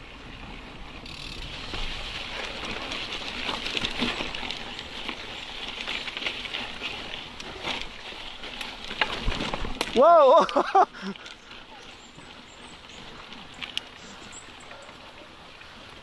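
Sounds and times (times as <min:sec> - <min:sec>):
tyre and trail noise: 0:00.0 - 0:16.0
bike rattles and knocks: 0:01.0 - 0:10.8.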